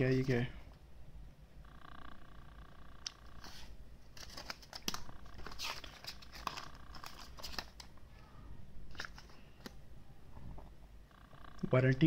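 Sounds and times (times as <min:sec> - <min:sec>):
paper and cardboard rustling: 0:03.4 - 0:07.9.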